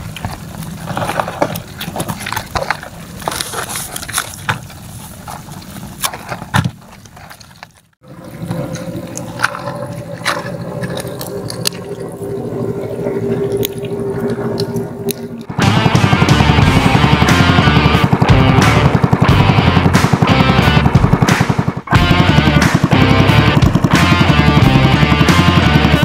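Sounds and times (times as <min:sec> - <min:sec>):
shrimp and crabs clicking wetly: 0:00.0 - 0:05.9, 0:08.6 - 0:15.5
steady low hum: 0:08.0 - 0:26.0.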